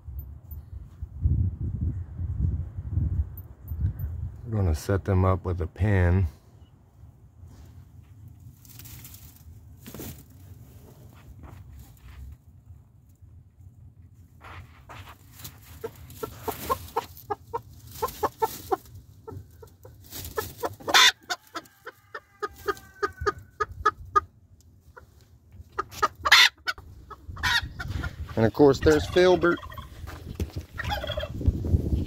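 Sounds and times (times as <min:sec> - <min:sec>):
chickens clucking: 0:15.4 - 0:31.5
chicken drawn-out call: 0:20.6 - 0:24.3, 0:25.8 - 0:28.2, 0:30.7 - 0:31.4.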